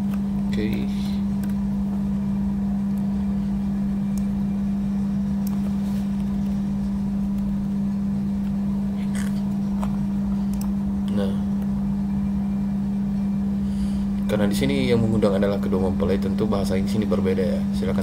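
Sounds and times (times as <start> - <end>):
steady low hum: 0.0 - 18.0
computer mouse clicks: 9.8 - 10.8.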